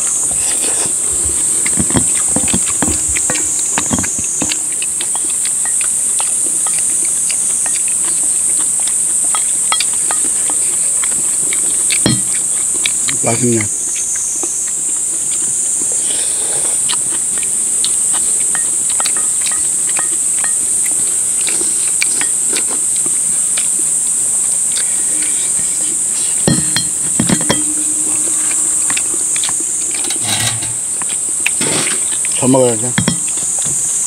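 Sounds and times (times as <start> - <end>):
insects droning: 0.0 - 34.0
utensils clinking on metal bowls: 9.3 - 13.7, 18.4 - 22.8, 26.2 - 33.4.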